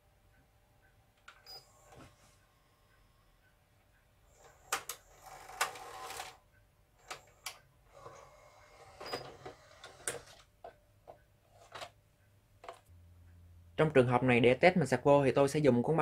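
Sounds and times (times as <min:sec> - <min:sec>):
vcr loading mechanism whirring: 0:04.3 - 0:06.4, 0:07.0 - 0:10.5.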